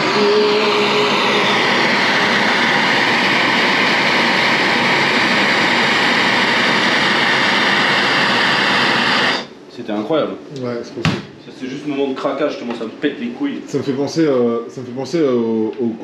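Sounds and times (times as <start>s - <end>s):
blowtorch flame hissing: 0.0s - 9.6s.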